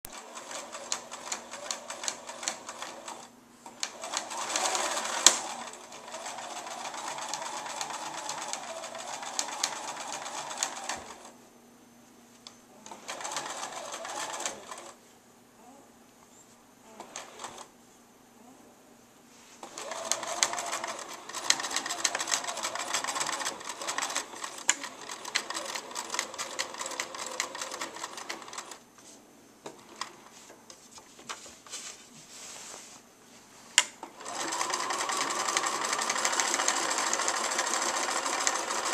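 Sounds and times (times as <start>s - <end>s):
sewing machine stitching: 0.1s - 11.3s, 12.9s - 15.0s, 17.0s - 17.7s, 19.6s - 28.8s, 34.0s - 38.9s
sewing machine clicks: 19.7s - 28.8s, 33.8s - 38.9s.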